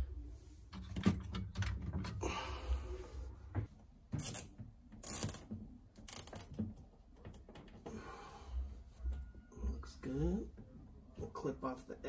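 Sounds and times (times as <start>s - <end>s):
zip tie ratcheting: 4.2s - 6.6s.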